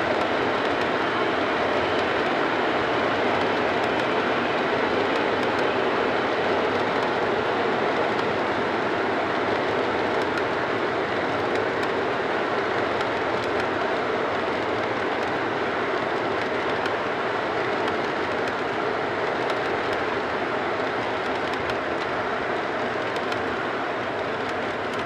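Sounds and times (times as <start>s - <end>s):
model train wheels rumbling on track: 0.0s - 25.0s
faint clicks: 23.0s - 23.4s.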